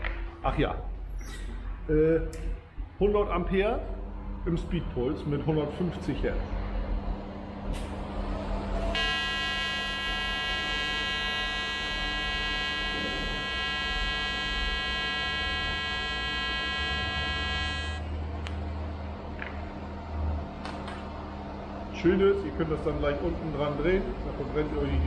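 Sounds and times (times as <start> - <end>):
welding arc buzzing: 8.9 - 18.2.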